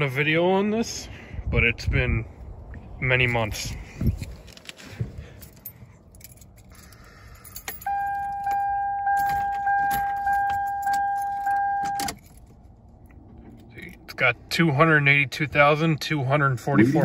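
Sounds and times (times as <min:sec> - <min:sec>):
keys jingling: 0:04.1 - 0:12.6
car warning chime: 0:07.8 - 0:12.2.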